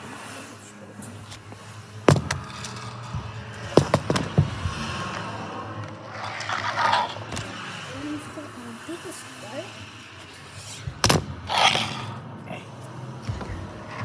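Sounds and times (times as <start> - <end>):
rustling scrape: 6.0 - 7.6.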